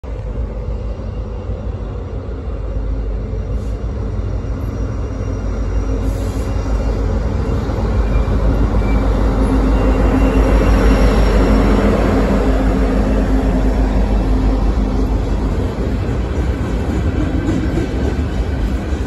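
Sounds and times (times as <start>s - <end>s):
diesel locomotive engine rumble: 0.0s - 19.0s.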